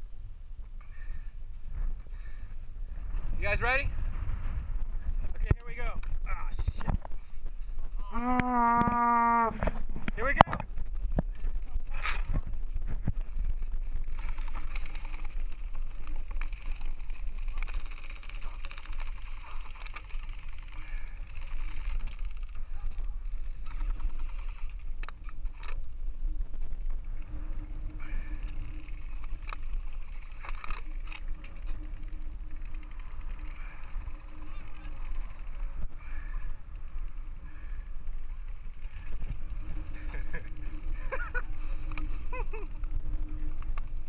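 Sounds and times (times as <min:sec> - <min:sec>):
wind rumble on microphone: 0:00.0 - 0:44.0.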